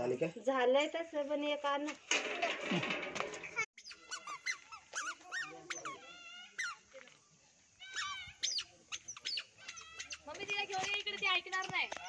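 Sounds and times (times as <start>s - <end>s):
squeaky animal calls: 3.8s - 6.8s, 7.8s - 10.3s.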